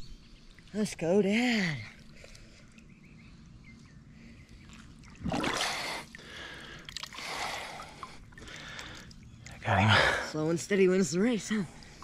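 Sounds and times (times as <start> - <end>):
water sloshing: 0.4 - 12.0
loud water splash: 5.2 - 6.0.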